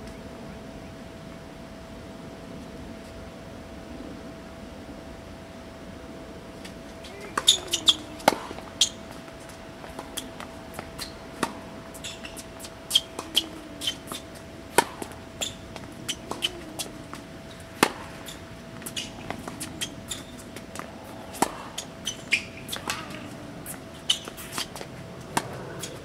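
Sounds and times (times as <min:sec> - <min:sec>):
shoe squeaks: 0:07.1 - 0:09.1, 0:11.0 - 0:11.2, 0:12.0 - 0:14.2, 0:15.4 - 0:16.9, 0:18.2 - 0:20.5, 0:21.4 - 0:23.4, 0:24.0 - 0:24.7.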